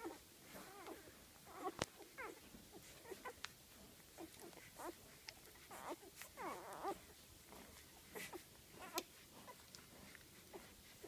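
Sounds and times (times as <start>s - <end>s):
puppies squeaking: 1.5s - 3.4s, 4.1s - 11.0s.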